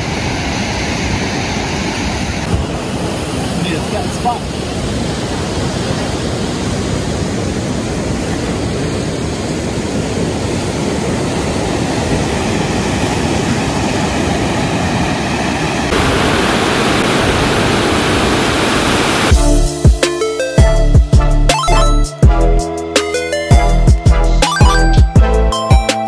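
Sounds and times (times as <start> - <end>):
surf breaking on beach: 0.0 - 19.3.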